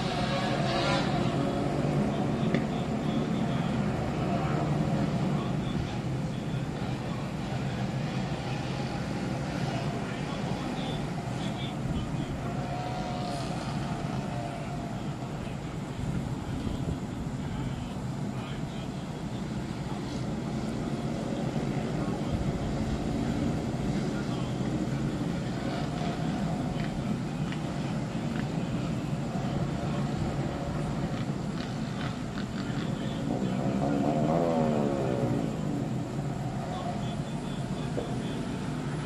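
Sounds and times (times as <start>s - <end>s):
loud motorcycle exhausts: 0.0s - 15.1s, 20.0s - 39.0s
distant traffic rumble: 0.0s - 39.0s
motorcycle engine revving: 12.7s - 14.3s, 29.4s - 36.8s.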